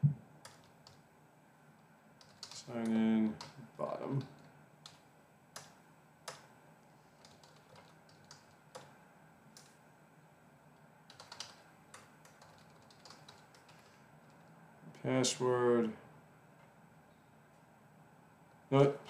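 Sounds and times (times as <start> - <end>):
typing on computer keyboard: 0.4 - 1.0, 2.2 - 3.6, 5.6 - 6.5, 7.2 - 9.7, 11.1 - 14.5.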